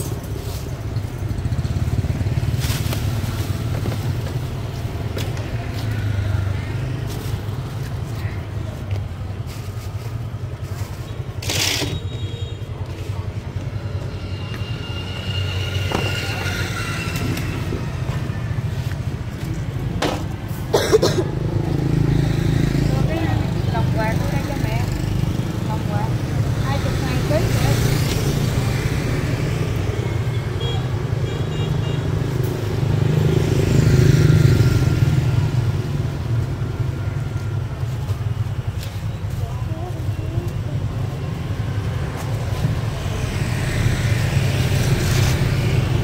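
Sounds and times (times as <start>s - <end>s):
street traffic: 0.0s - 46.0s.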